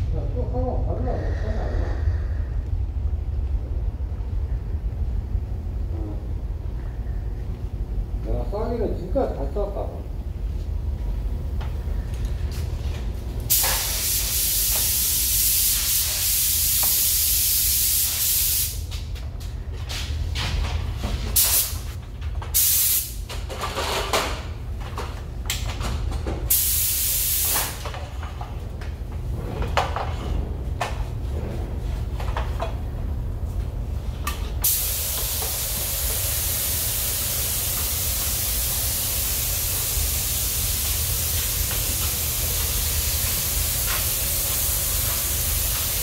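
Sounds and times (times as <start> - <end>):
steady low hum: 0.0 - 46.0
paint spray gun hissing: 13.5 - 18.8, 22.6 - 23.2, 26.5 - 27.8, 34.6 - 46.0.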